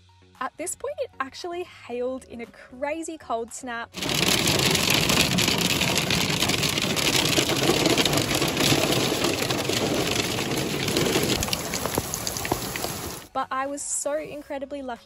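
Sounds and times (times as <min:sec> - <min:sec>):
hail hitting car roof: 0:04.0 - 0:13.3.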